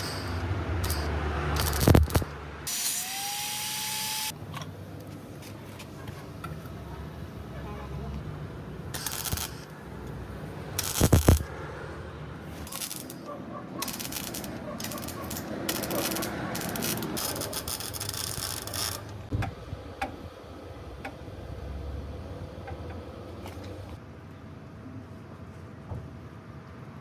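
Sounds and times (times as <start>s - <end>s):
arc welding crackling sizzle: 0.0s - 4.4s, 8.9s - 11.5s, 12.5s - 19.3s.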